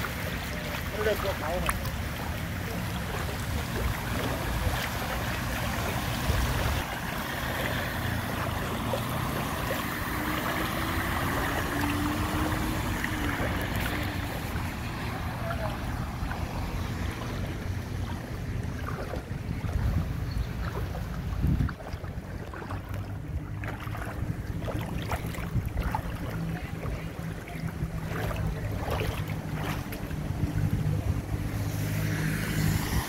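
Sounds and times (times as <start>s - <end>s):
car tyres splashing through water: 0.0s - 33.0s
wind rumble on microphone: 0.0s - 33.0s.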